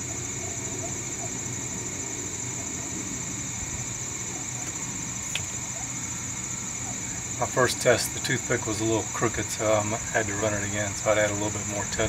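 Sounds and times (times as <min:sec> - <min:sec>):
constant high-pitched tone: 0:00.0 - 0:12.0.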